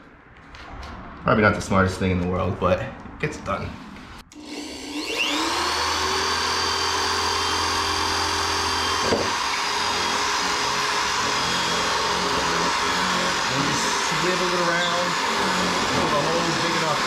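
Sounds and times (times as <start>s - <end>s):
electric drill boring into plastic pipe: 4.3s - 17.0s.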